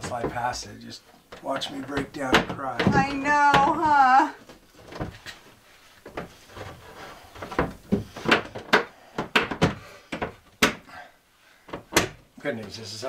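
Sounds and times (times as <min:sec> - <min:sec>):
wooden cabinet knocks and clicks: 0:00.0 - 0:00.6, 0:01.2 - 0:04.2, 0:07.4 - 0:10.9, 0:11.7 - 0:12.8.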